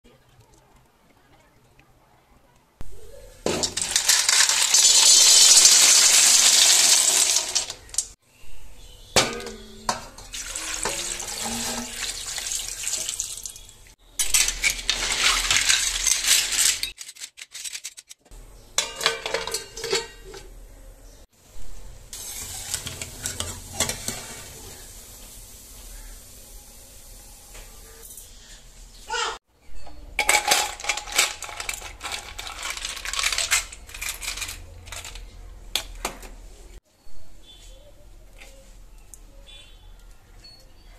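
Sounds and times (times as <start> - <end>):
snail shells clattering in metal pan: 3.5 - 8.2, 9.4 - 18.2, 30.2 - 36.0
water boiling: 3.8 - 8.1, 9.9 - 14.0, 21.4 - 27.4.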